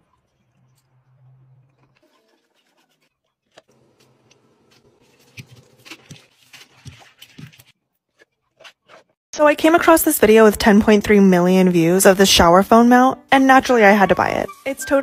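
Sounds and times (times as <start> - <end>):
toilet brush scrubbing: 0.0 - 9.2.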